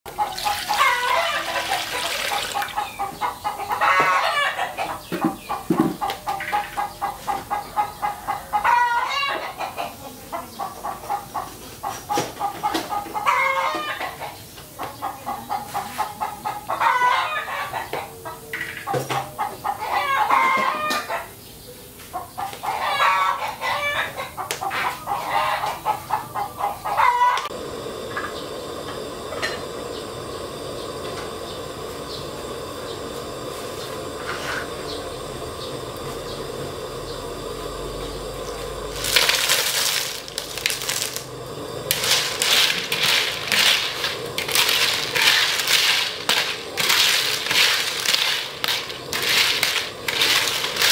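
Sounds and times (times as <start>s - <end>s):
rooster crowing: 0.1s - 5.1s, 7.8s - 10.0s, 13.0s - 14.3s, 16.5s - 18.5s, 19.1s - 21.3s, 22.7s - 27.6s
water hissing in a wok: 0.1s - 8.5s, 24.3s - 50.9s
chickens clucking: 0.1s - 50.9s.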